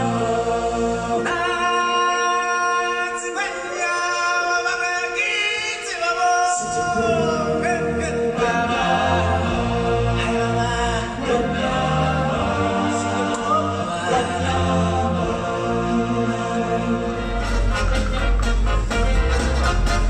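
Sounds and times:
group singing in chorus: 0.0s - 3.4s, 5.6s - 18.2s
live stage music: 0.0s - 20.0s.

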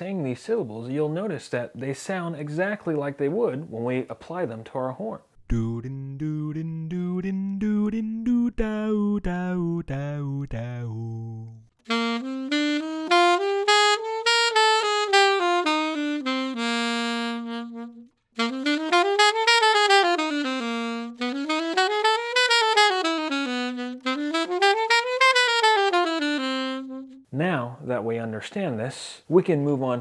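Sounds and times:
alto saxophone jazz runs: 11.8s - 27.3s.

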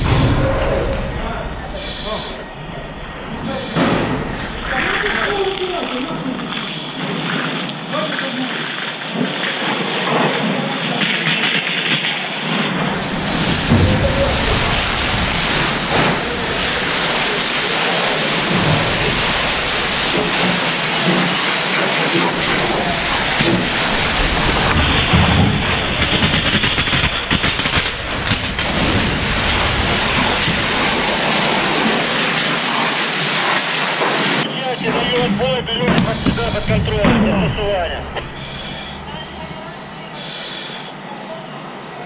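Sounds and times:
low rumble: 0.0s - 6.5s, 12.8s - 20.4s, 22.2s - 32.2s, 35.1s - 39.8s
water and steam hissing: 0.0s - 42.0s.

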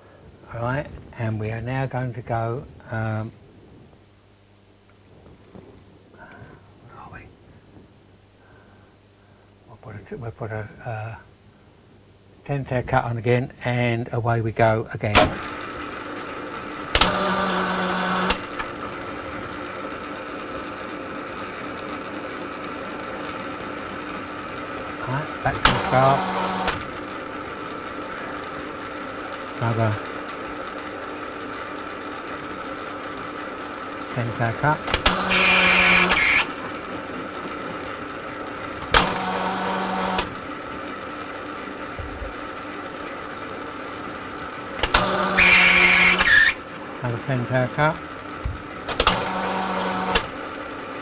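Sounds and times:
metal lathe running: 15.1s - 51.0s
machine click: 34.8s - 36.8s, 44.8s - 46.6s
hiss: 35.3s - 36.5s, 45.4s - 46.6s
sharp click: 44.8s - 46.6s.

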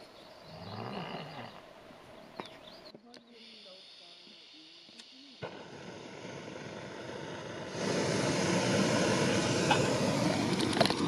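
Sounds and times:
gas stove burner hissing: 3.4s - 11.0s.

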